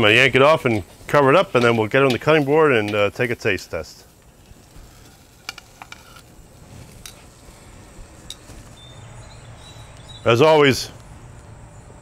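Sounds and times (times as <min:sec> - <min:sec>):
meat sizzling on grill: 0:00.0 - 0:09.7
tongs clicking on grate: 0:01.5 - 0:03.1.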